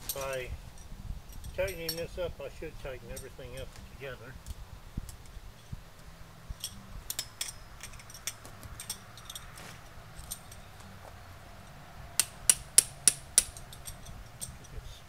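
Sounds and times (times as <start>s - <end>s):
metal clips clicking: 6.6s - 10.9s, 12.2s - 14.8s.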